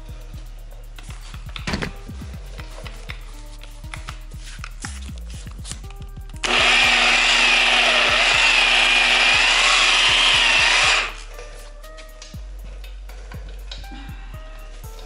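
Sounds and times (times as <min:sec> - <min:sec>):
polisher motor whine: 0:06.4 - 0:11.2.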